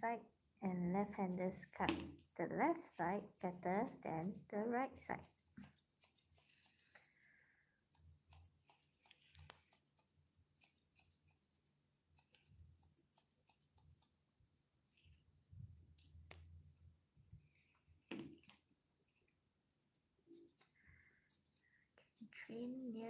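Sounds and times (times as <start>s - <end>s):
scissors snipping hair: 2.2s - 7.3s, 7.9s - 14.3s, 19.7s - 23.0s.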